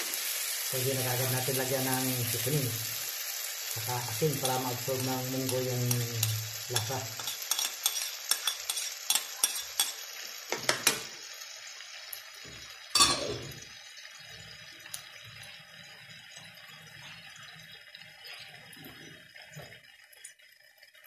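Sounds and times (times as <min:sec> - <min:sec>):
faint sizzle from pan: 0:00.0 - 0:21.0
metal spoon clinking on plate: 0:06.2 - 0:10.0.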